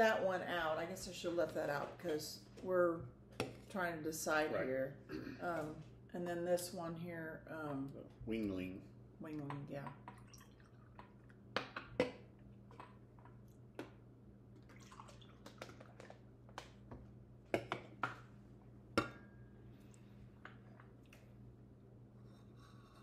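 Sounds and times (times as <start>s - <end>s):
steady low hum: 0.0s - 23.0s
beer pouring into glasses: 14.6s - 16.0s.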